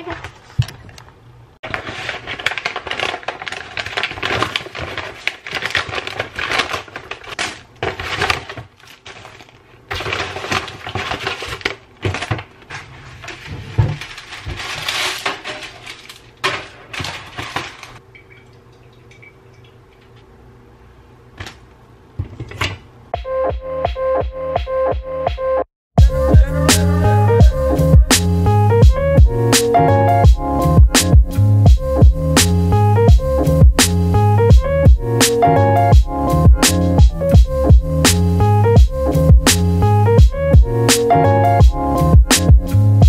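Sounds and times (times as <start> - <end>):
plastic packaging crinkling: 1.6 - 18.0.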